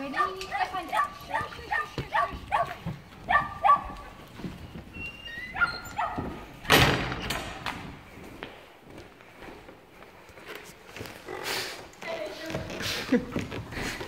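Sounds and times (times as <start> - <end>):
dog whining yips: 3.3 - 4.2, 5.0 - 6.4.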